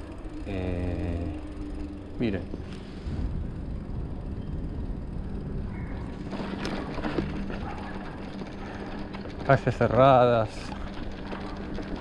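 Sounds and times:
tyre and wind rumble: 3.0s - 9.7s
bike rattle: 3.6s - 12.0s.

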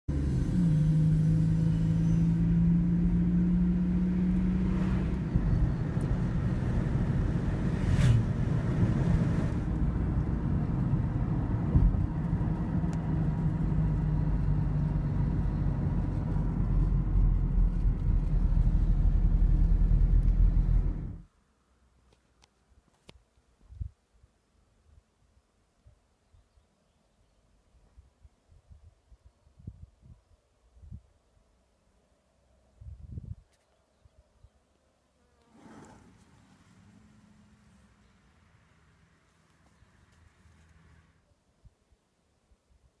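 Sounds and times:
low road rumble: 0.0s - 21.4s, 35.4s - 41.3s
car engine drone: 0.1s - 21.3s.

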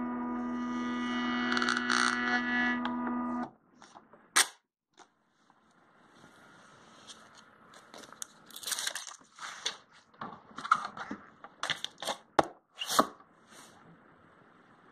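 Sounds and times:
paper label rustling and crinkling: 7.0s - 9.9s.

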